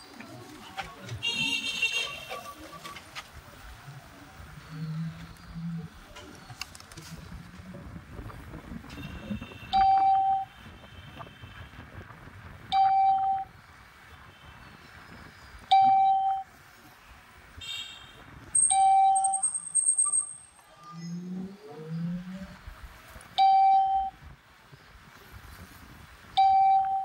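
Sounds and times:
low road rumble: 0.0s - 27.0s
electronic beep: 15.7s - 16.5s, 18.6s - 22.2s, 23.4s - 24.2s, 26.4s - 27.0s.

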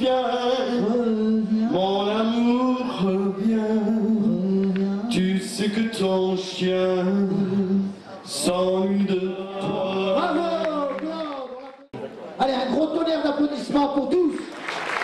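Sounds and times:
man singing into microphone: 0.0s - 10.9s.

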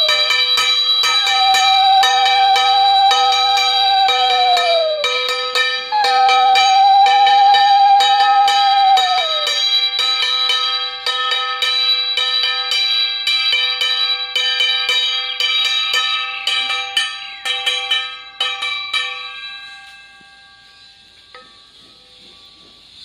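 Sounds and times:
wavering blown tone: 0.0s - 9.9s
hand bell ringing fast: 0.0s - 23.0s.

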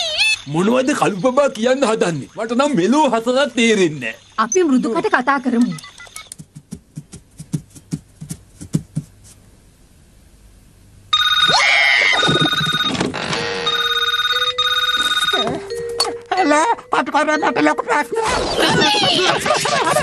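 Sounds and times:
telephone ringing: 11.1s - 20.0s.

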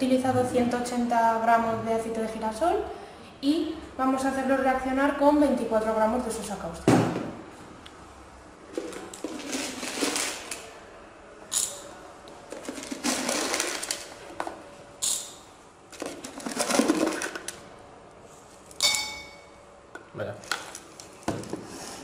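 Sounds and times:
pellets rattling against glass: 12.6s - 14.1s.

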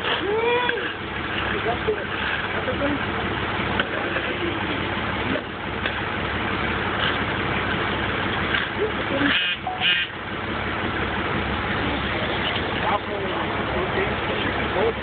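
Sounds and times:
diesel engine idling: 0.0s - 15.0s
short high-pitched squeaks: 9.2s - 10.2s.

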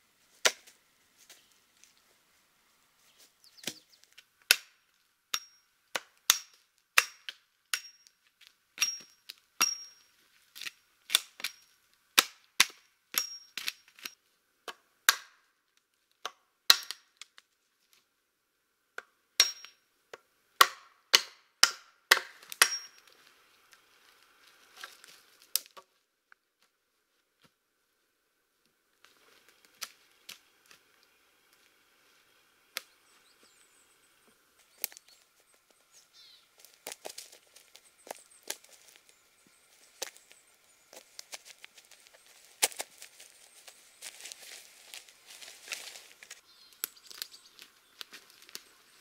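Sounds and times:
hatchet chopping wood: 3.6s - 8.1s, 8.8s - 10.0s, 10.6s - 15.4s, 16.2s - 17.1s, 19.0s - 19.8s, 20.6s - 23.1s.

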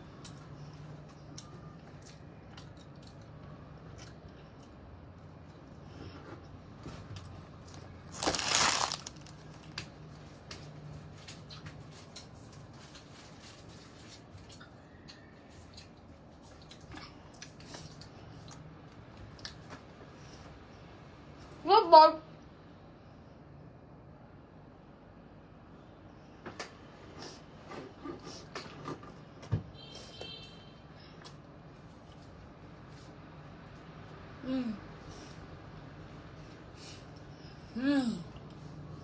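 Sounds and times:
child chewing bread: 0.0s - 20.5s.

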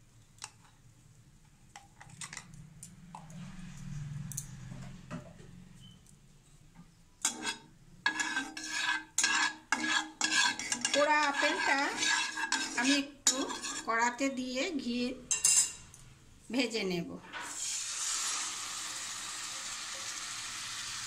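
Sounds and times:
spatula scraping a pan: 7.2s - 14.5s.

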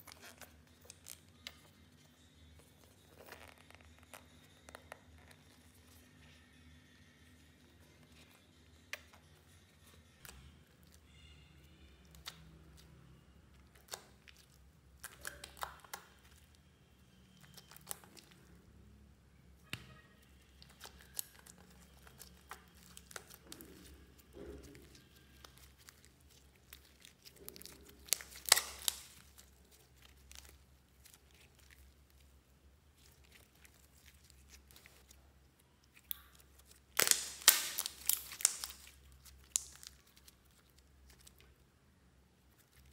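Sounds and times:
slime kneaded and squeezed: 9.8s - 18.6s, 19.6s - 41.7s.

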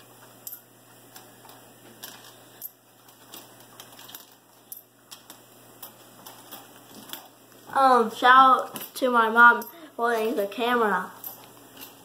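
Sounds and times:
coins clinking: 0.4s - 7.3s, 11.1s - 12.0s.

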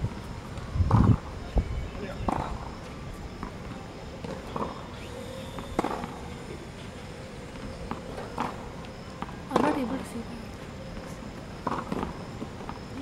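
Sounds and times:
racket hitting tennis ball: 5.8s - 6.2s, 7.9s - 8.6s.

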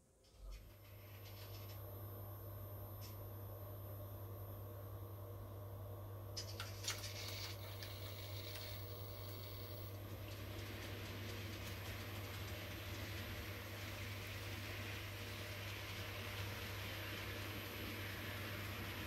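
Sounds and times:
model train running on track: 10.2s - 19.0s.

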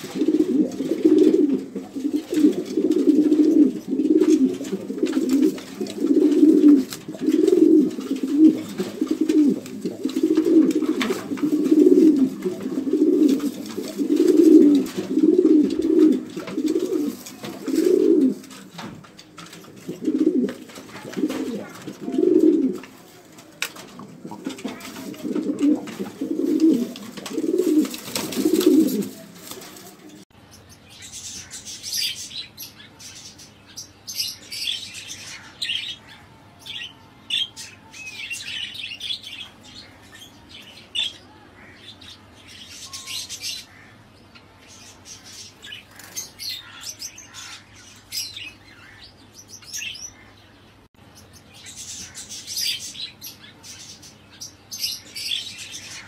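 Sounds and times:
pigeons cooing: 0.0s - 30.2s.

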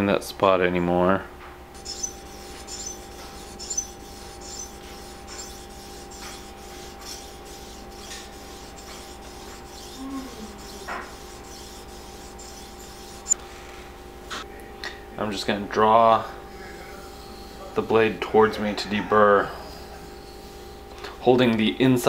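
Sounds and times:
sharpening stone scraping steel blade: 1.8s - 13.4s.

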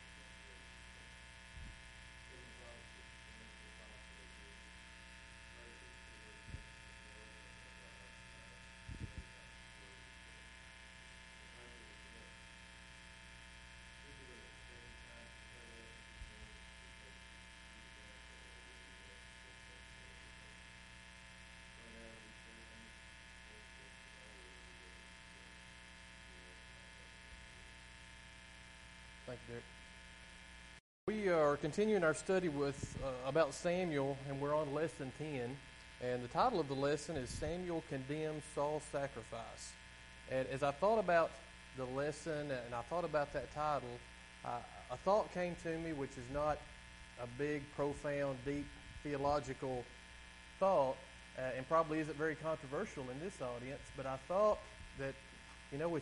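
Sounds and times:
electrical buzz and hum: 0.0s - 56.0s
faint man leading prayer: 14.0s - 20.5s, 31.1s - 49.9s.

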